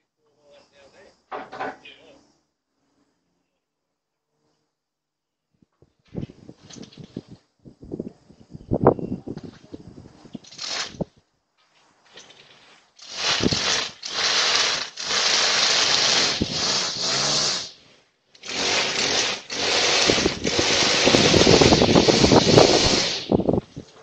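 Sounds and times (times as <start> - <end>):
leaf blower engine: 13.0 - 23.5.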